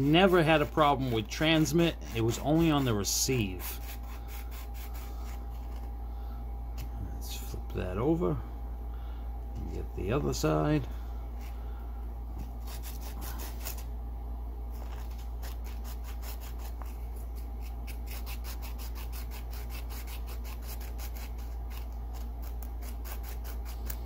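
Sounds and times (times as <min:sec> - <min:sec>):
metal scratching on sandpaper: 0:00.0 - 0:05.9, 0:12.6 - 0:13.8, 0:14.8 - 0:24.0
steady low hum: 0:00.0 - 0:24.0.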